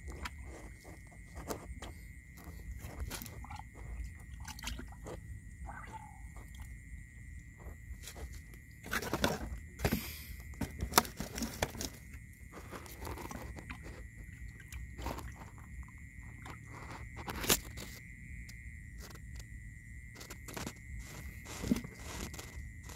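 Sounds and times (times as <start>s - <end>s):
faint high tone: 5.6s - 6.3s.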